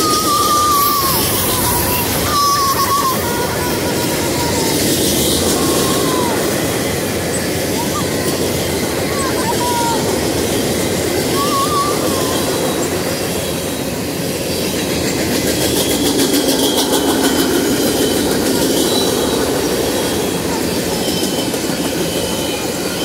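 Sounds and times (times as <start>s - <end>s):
faint thin wheel squeals: 0.0s - 10.1s, 15.7s - 23.0s
train wheels rumbling on rails: 0.0s - 23.0s
rapid clicking of wheels: 12.3s - 23.0s.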